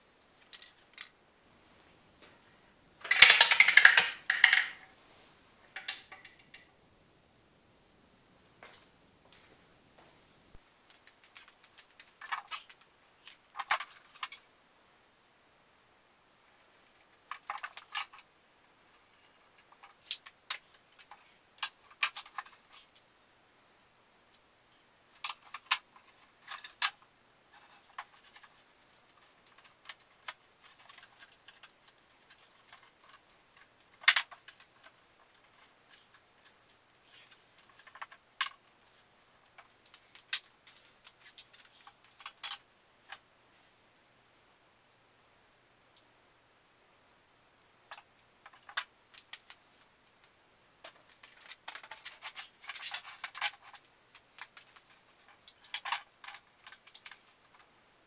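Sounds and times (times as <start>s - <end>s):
boards knocking and clattering: 3.0s - 4.9s.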